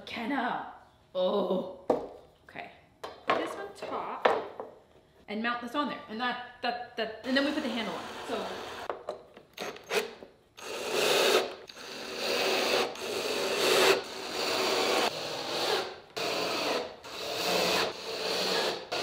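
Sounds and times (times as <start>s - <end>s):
cordless drill driving screws: 9.6s - 15.1s.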